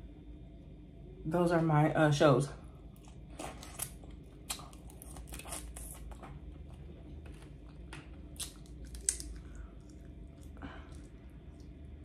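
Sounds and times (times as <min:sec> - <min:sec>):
crawfish shells cracking: 0:07.2 - 0:11.1.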